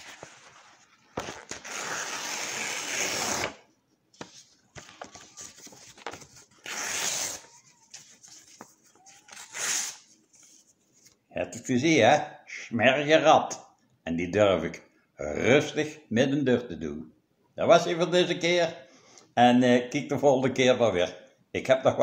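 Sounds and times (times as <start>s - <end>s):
paper crinkling and rustling: 0.0s - 2.0s, 4.2s - 11.2s
paper tearing: 0.0s - 3.6s, 4.8s - 10.1s.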